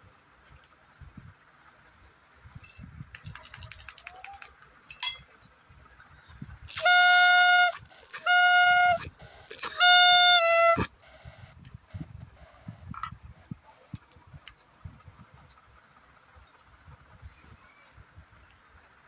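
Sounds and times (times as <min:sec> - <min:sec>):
toy horn tooting: 0:06.7 - 0:11.5
foil wrappers crinkling: 0:07.6 - 0:09.8.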